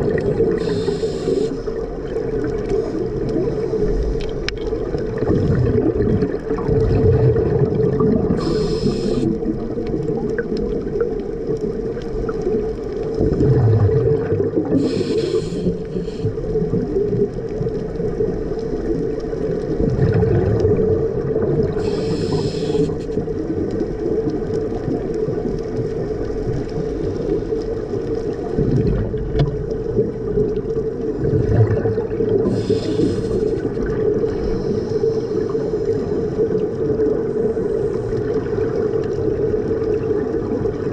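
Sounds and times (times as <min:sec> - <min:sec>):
exhaled air bubbling: 0:00.0 - 0:40.9
regulator inhalation hiss: 0:00.4 - 0:01.8, 0:08.4 - 0:09.5, 0:14.7 - 0:16.4, 0:21.8 - 0:23.2, 0:32.4 - 0:33.7.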